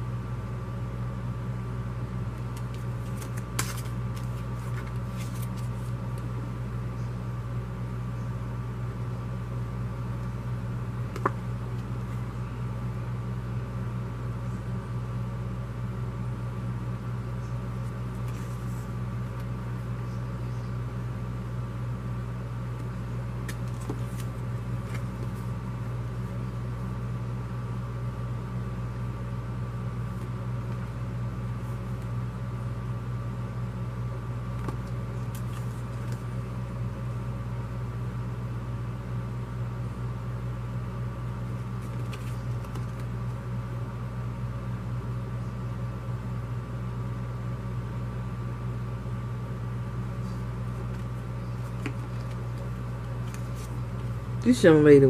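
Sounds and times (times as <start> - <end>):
low mechanical hum: 0.0 - 55.0
paper cards being handled: 2.4 - 6.3, 17.8 - 20.2, 22.8 - 25.6, 34.6 - 36.3, 41.4 - 43.4, 50.2 - 54.1.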